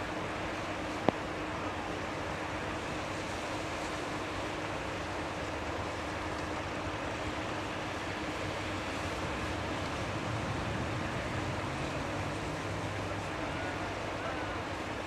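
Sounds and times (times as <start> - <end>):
rushing wind: 7.7 - 14.1.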